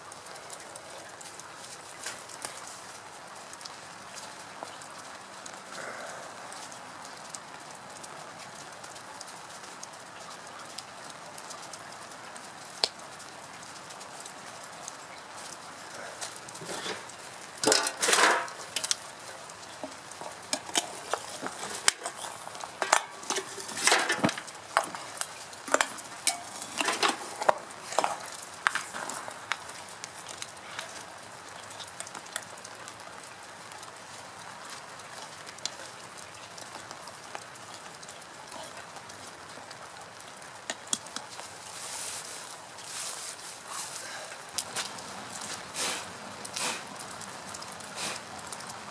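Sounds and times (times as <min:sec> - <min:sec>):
fire crackling: 0:00.0 - 0:48.9
straw rustling: 0:13.8 - 0:32.6, 0:40.9 - 0:48.3.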